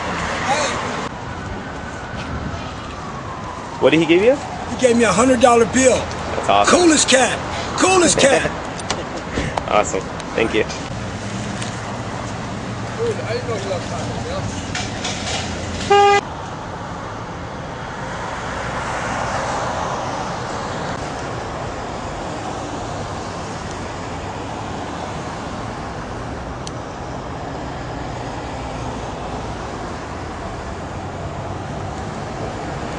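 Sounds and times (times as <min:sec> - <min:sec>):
city street traffic: 0:00.0 - 0:32.9
vehicle passing by: 0:17.8 - 0:23.5.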